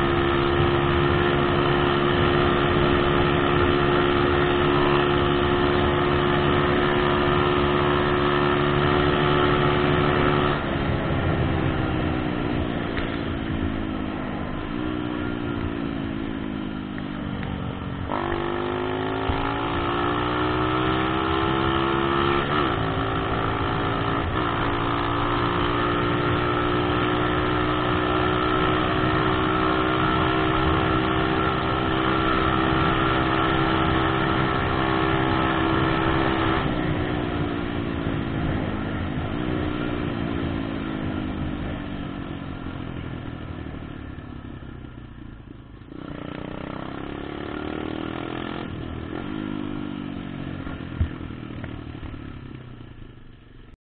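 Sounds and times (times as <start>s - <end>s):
wind and road noise: 0.0s - 53.8s
motorbike engine revving: 18.0s - 41.5s, 45.9s - 52.4s.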